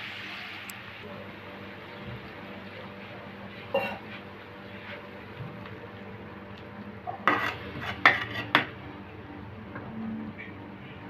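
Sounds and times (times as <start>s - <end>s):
spatula stirring in a pan: 7.1s - 8.7s.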